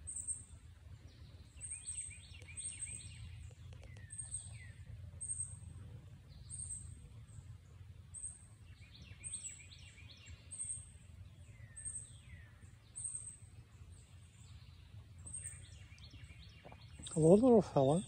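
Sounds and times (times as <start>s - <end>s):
birds chirping: 0.0s - 18.0s
low steady rumble: 0.0s - 18.0s.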